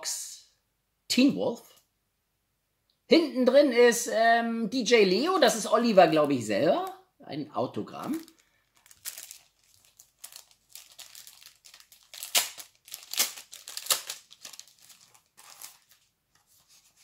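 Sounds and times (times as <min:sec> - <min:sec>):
plastic sleeve crinkling: 0:08.0 - 0:17.0.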